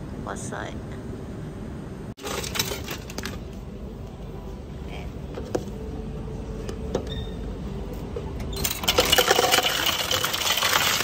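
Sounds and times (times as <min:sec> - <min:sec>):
ice cubes clattering into cup: 0:08.6 - 0:11.0.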